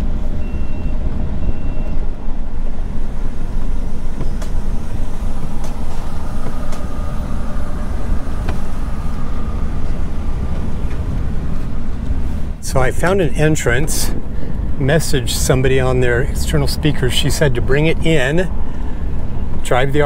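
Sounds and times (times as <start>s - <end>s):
engine and road noise rumble: 0.0s - 20.0s
faint high beeps: 0.4s - 2.1s.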